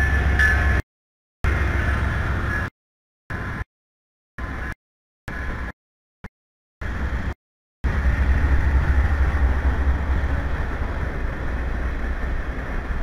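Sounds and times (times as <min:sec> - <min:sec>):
locomotive engine rumble: 0:00.0 - 0:00.8, 0:01.5 - 0:02.7, 0:06.8 - 0:13.0
wheel and rail noise: 0:00.0 - 0:00.8, 0:01.5 - 0:02.7, 0:06.8 - 0:13.0.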